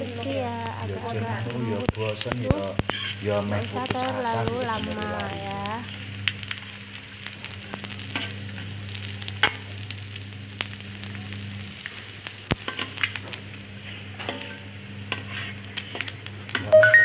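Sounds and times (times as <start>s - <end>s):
fish sizzling in a wok: 0.0s - 17.0s
metal spatula scraping a pan: 13.9s - 16.1s.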